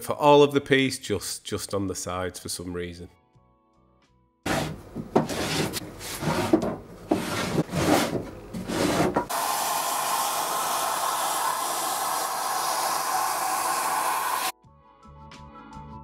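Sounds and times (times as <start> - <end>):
wooden drawers knocking and rubbing: 4.5 - 9.3
shop vacuum hissing: 8.6 - 14.6.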